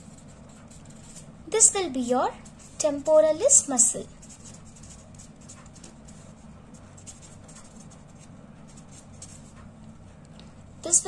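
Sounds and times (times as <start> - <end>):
pen scratching on paper: 0.0 - 1.3, 4.2 - 9.6
low electrical hum: 0.0 - 11.0.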